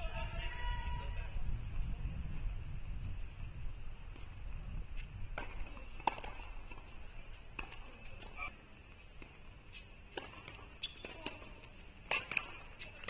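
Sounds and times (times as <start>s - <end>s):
tennis ball bouncing: 5.0s - 8.5s, 10.1s - 13.0s.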